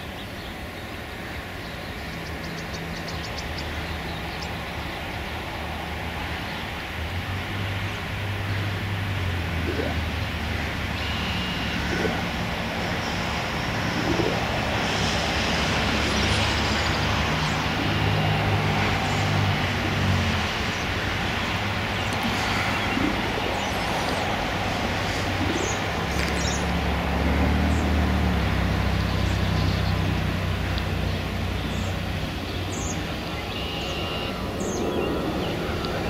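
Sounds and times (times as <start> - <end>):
broad rushing noise: 0.0 - 36.0
low engine drone: 0.0 - 36.0.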